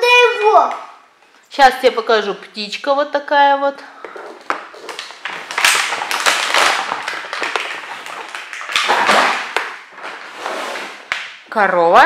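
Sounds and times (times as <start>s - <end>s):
plastic packaging crinkling: 4.2s - 11.4s.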